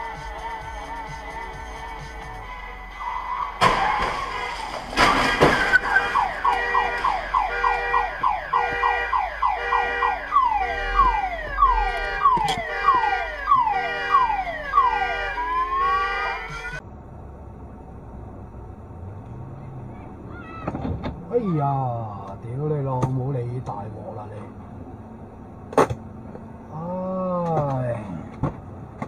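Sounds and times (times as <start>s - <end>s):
car alarm whooping: 2.9s - 16.8s
car crash impact: 3.5s - 8.4s.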